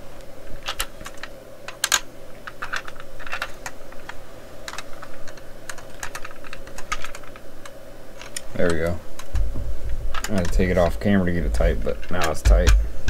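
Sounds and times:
faint steady hum: 0:00.0 - 0:13.0
screwdriver clicking and tapping: 0:12.1 - 0:12.9.

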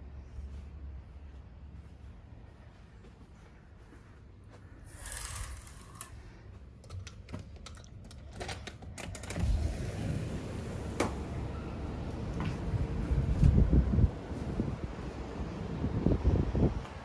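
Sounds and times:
city noise: 0:00.0 - 0:17.0
wind: 0:00.0 - 0:17.0
curtain swishing: 0:04.9 - 0:06.1
balcony door clicking open: 0:04.9 - 0:06.2, 0:06.8 - 0:11.2.

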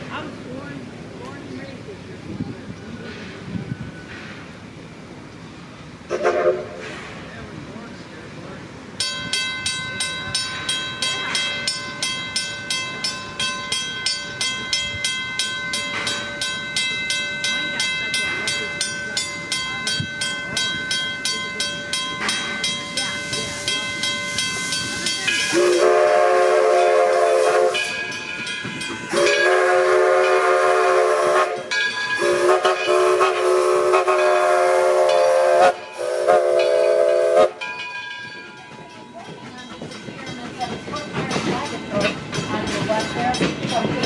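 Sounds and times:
steam locomotive whistle blasts: 0:06.1 - 0:07.0, 0:25.3 - 0:28.2, 0:29.1 - 0:37.7
locomotive bell ringing: 0:08.9 - 0:44.0.

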